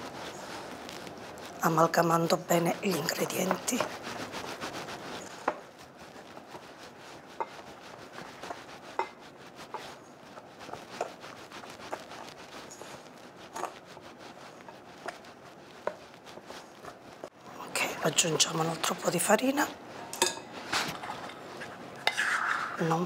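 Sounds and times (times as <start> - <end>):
fork scraping glass bowl: 7.3 - 10.0, 10.6 - 13.8, 20.1 - 23.0.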